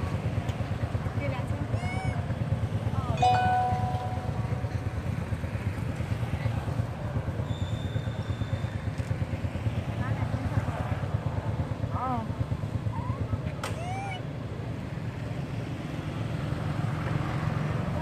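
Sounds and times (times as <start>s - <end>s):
motorbike engine idling: 0.0s - 15.7s
thin high steady tone: 3.2s - 5.1s.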